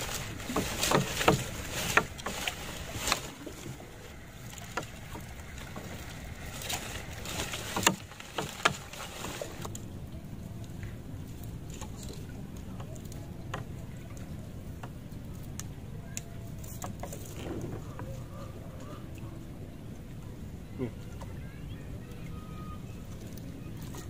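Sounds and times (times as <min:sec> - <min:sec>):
fishing net splashing into water: 0:00.0 - 0:09.7.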